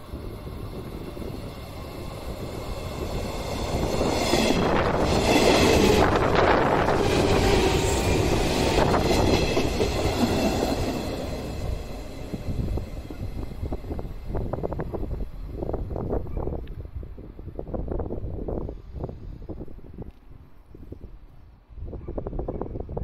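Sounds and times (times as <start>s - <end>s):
train wheels clattering: 0.9s - 14.0s.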